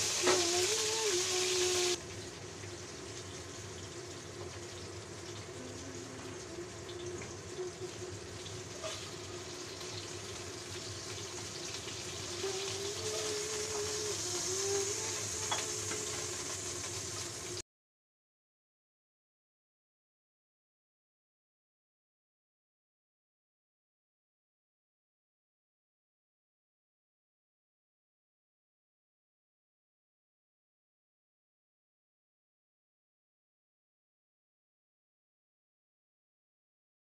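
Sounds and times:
fish sizzling in hot oil: 0.0 - 17.6.

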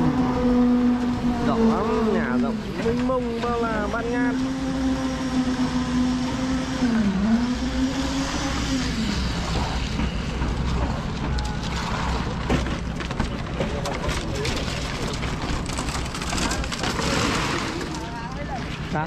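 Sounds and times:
construction machine engine: 0.0 - 19.0
wheelbarrows clanking on rebar: 9.2 - 19.0.

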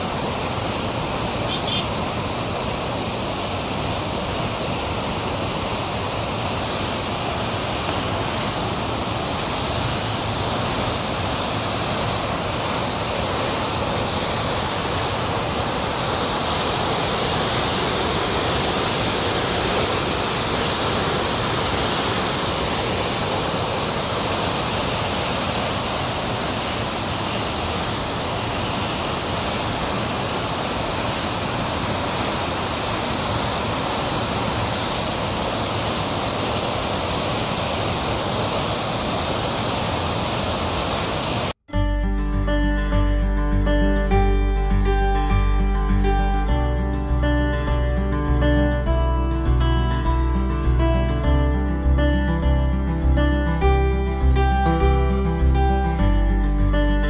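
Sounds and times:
water rushing through spillway: 0.0 - 41.6.

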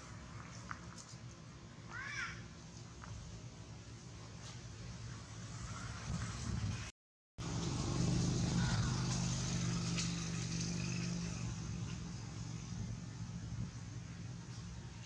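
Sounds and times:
low vehicle engine hum: 3.4 - 15.0.

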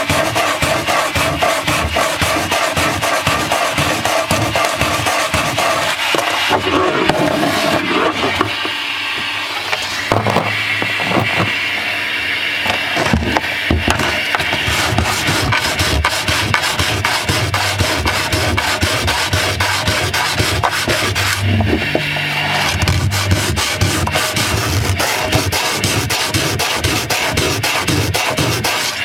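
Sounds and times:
sandpaper rubbing on wood: 0.0 - 6.8, 14.0 - 21.4, 22.7 - 29.0.

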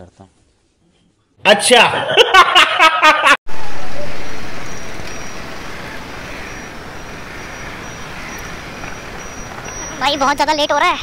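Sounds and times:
motorcycle riding noise: 3.8 - 10.5.

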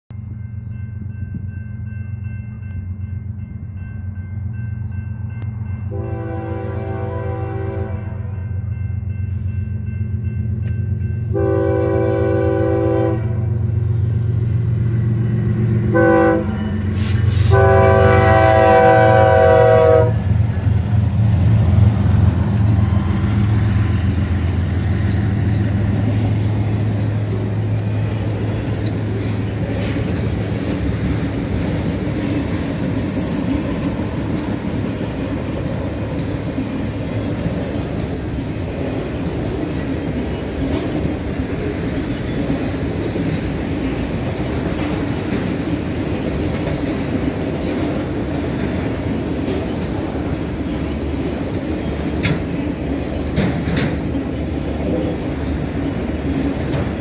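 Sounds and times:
locomotive engines rumbling: 0.2 - 57.0
train wheels on rails: 0.2 - 57.0
locomotive air horn blasts: 5.9 - 8.4, 11.3 - 13.6, 15.9 - 20.4.

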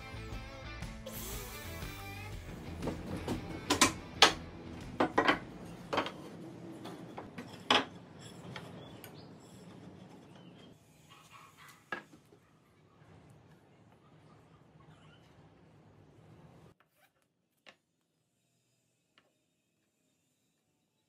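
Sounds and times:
wood knocking on workbench: 2.8 - 6.2.

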